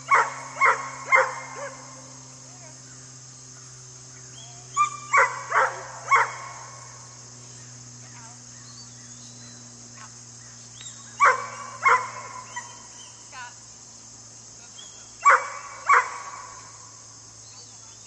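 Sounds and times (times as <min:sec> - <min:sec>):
insect drone: 0:00.0 - 0:18.0
dog barking: 0:00.1 - 0:02.0, 0:04.8 - 0:06.7, 0:11.2 - 0:12.9, 0:15.2 - 0:16.6.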